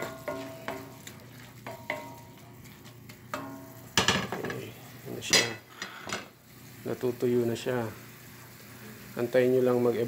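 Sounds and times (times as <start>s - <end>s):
wooden spatula scraping a pan: 0.0s - 4.9s
onions sizzling in a skillet: 0.0s - 10.0s.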